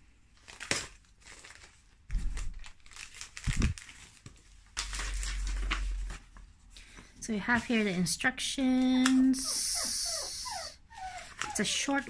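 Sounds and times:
plastic wrapping crinkling: 0:00.3 - 0:06.7.

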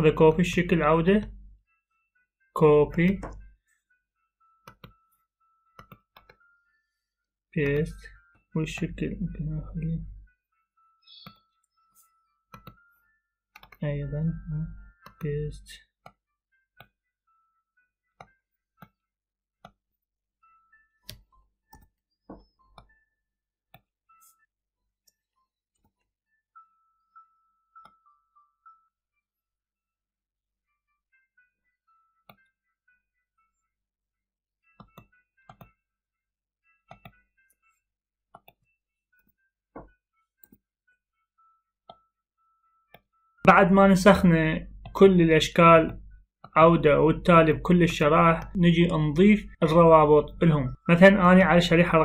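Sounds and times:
computer mouse clicks: 0:05.8 - 0:06.4, 0:12.5 - 0:12.8, 0:13.6 - 0:13.8, 0:36.9 - 0:37.2.

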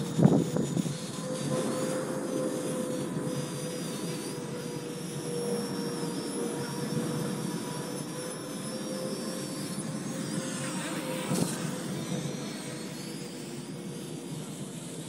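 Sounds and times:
wind rumble on microphone: 0:00.0 - 0:01.8
drone propellers whining: 0:00.0 - 0:15.0.

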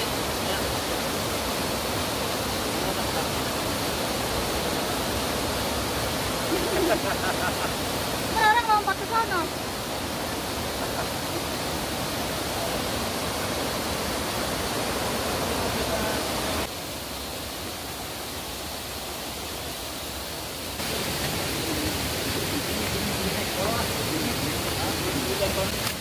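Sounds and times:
stream water rushing: 0:00.0 - 0:26.0.

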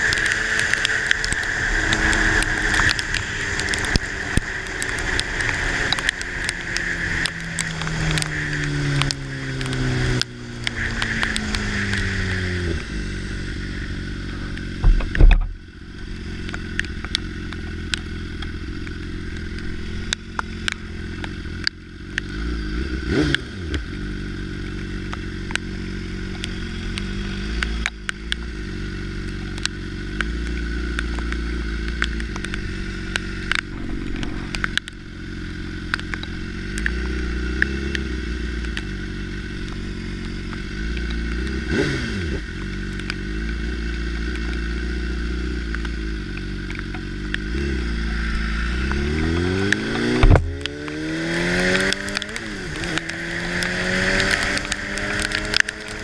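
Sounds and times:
rain ticking on camera: 0:00.0 - 0:12.4, 0:24.5 - 0:56.0.

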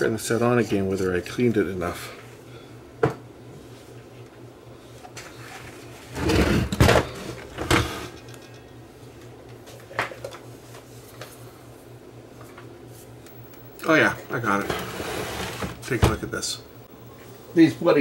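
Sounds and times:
plastic cabinet scraping clunk: 0:14.4 - 0:16.3.

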